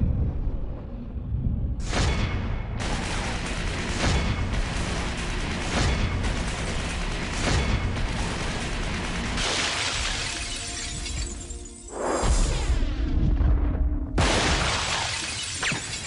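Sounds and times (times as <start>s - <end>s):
driving trailer music: 1.8s - 14.2s.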